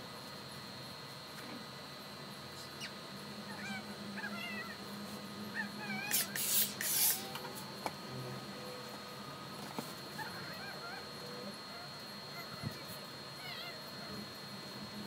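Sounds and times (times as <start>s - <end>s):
steady high whine: 0.0s - 15.0s
faint wavering animal calls: 2.5s - 9.4s, 10.0s - 15.0s
steam iron hissing: 6.1s - 7.4s.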